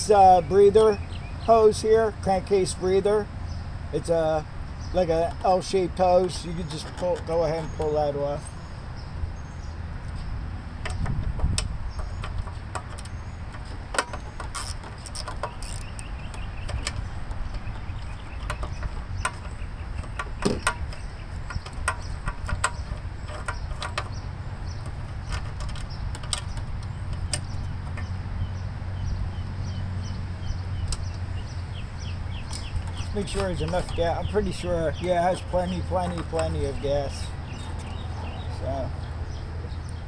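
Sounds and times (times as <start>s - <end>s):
ratchet clicking: 10.8s - 28.1s.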